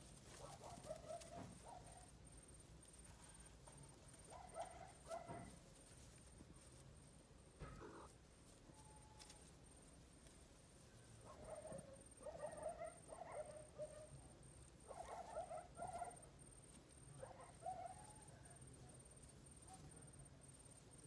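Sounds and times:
cats mewing faintly: 7.6s - 8.2s.

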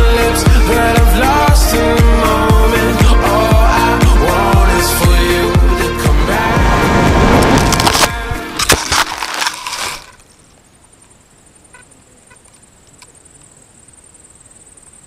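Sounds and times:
model plane scraping through grass: 7.1s - 10.2s
crickets chirping: 8.6s - 15.0s
faint ticks: 10.2s - 13.6s.

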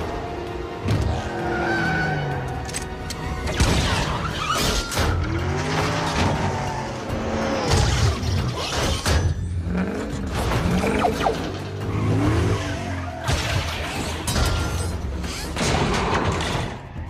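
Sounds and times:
car engines revving: 0.0s - 16.4s
film score music: 0.0s - 17.0s
tyres skidding: 0.0s - 17.0s.

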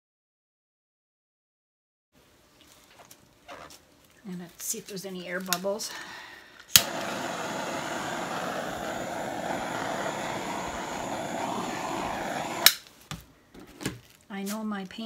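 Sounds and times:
hot-air blower running: 6.7s - 12.8s.

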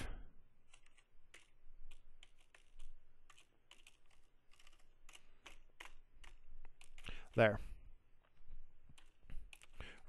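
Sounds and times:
typing on computer keyboard: 0.6s - 7.4s, 8.9s - 10.0s.

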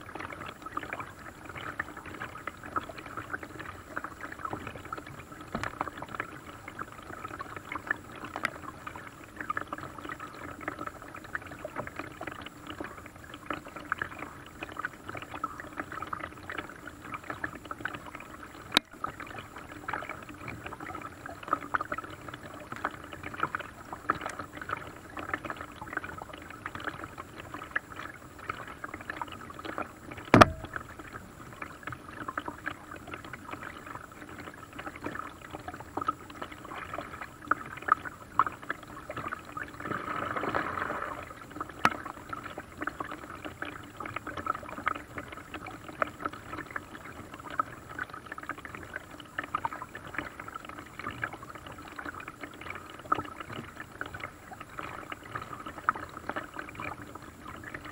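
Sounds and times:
rushing water: 0.0s - 57.9s
water drips: 0.0s - 57.9s
paddle splashing in water: 30.1s - 31.0s, 39.2s - 42.4s
sharp knock: 30.4s - 30.8s.

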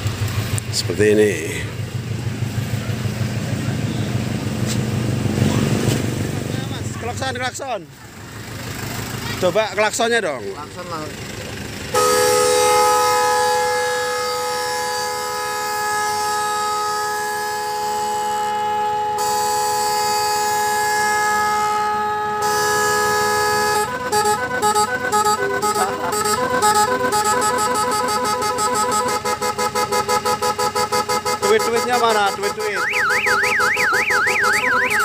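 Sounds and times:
multi-tone horn: 11.9s - 35.0s.

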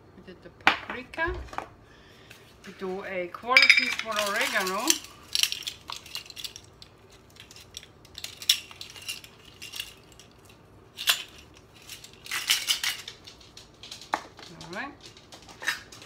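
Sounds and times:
plastic measuring spoons clacking: 3.6s - 10.3s.

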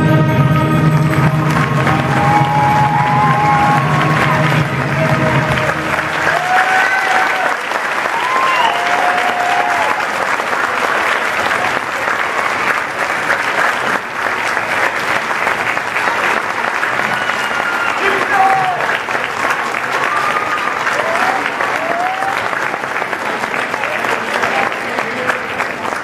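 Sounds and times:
concert band final chord: 0.0s - 6.6s
audience applauding: 0.6s - 26.0s
audience cheering: 0.8s - 25.9s.

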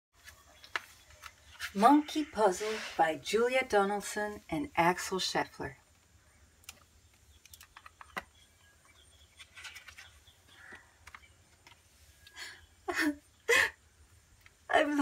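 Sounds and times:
paper pages rustling: 0.2s - 1.8s, 9.2s - 12.0s.

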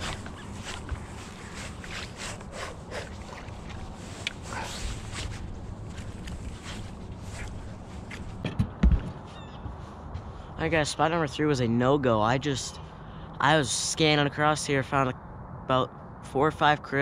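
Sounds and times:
low hum: 0.0s - 10.7s
knocks and rustles: 7.4s - 9.8s.

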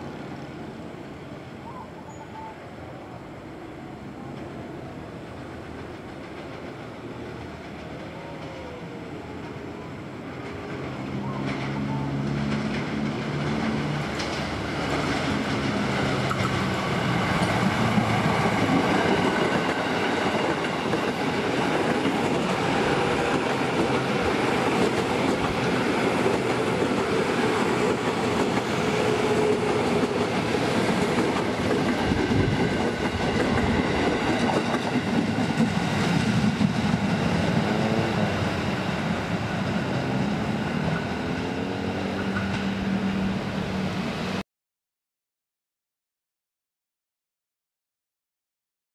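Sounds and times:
train wheels on rails: 3.8s - 44.4s
clickety-clack of wheels: 10.4s - 38.4s, 42.1s - 42.7s.

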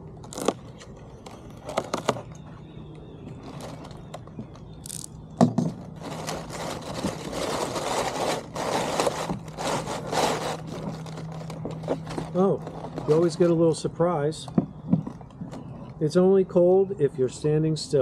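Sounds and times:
cardboard scraping and rustling: 0.2s - 2.6s, 5.8s - 13.6s.

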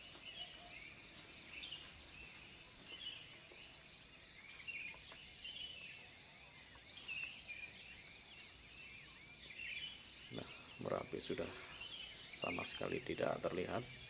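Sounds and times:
forest birds chirping: 0.0s - 14.0s.

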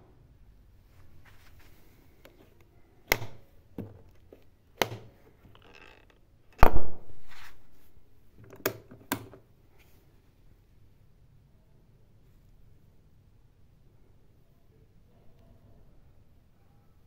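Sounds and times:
plastic control panel clicks: 3.1s - 3.4s.

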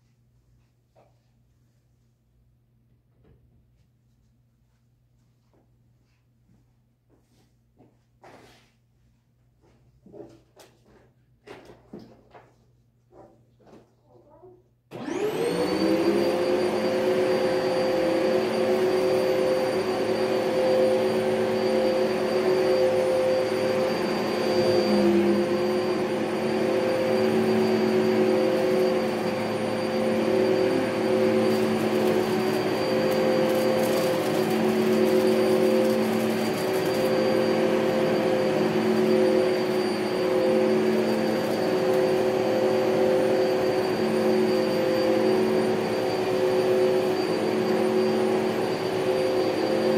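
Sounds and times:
vacuum cleaner whining: 14.9s - 49.9s.

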